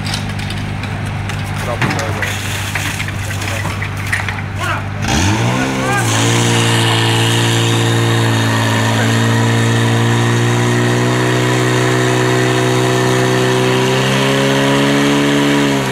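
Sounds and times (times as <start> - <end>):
pump engine running at high revs: 4.9 - 15.9.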